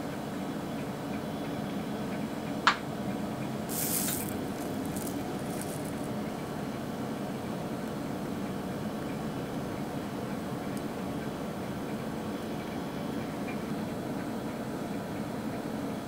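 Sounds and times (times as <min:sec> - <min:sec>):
sugar pearls rattling into palm: 0:03.7 - 0:06.1.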